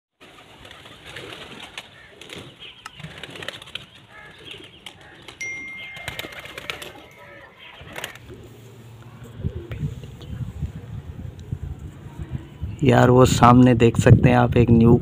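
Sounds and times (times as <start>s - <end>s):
pigeons flapping wings: 0.2s - 8.4s
steady high tone: 5.4s - 9.6s.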